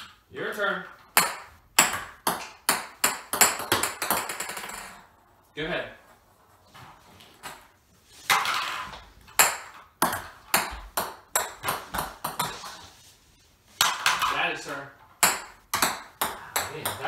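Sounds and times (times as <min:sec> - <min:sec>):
plastic balls bouncing and clattering: 0:01.0 - 0:05.2, 0:07.2 - 0:12.9, 0:13.8 - 0:17.0.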